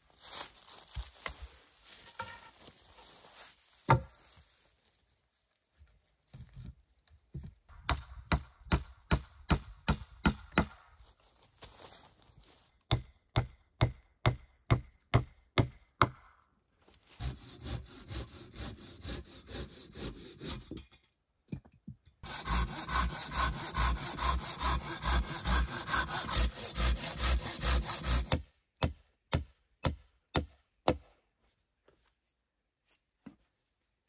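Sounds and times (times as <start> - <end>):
axe chopping wood: 3.9 - 4.1, 7.8 - 10.8, 28.0 - 31.1.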